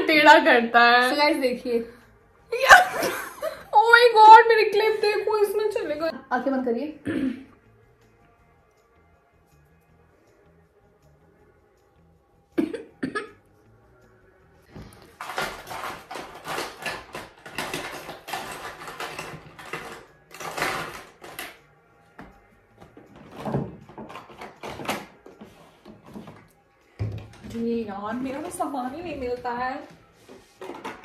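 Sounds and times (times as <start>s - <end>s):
plastic cases clattering and rustling: 15.1s - 21.5s, 30.6s - 31.0s.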